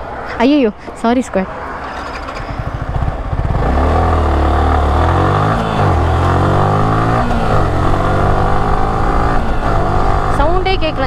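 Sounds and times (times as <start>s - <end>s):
motorcycle engine at speed: 1.8s - 11.0s.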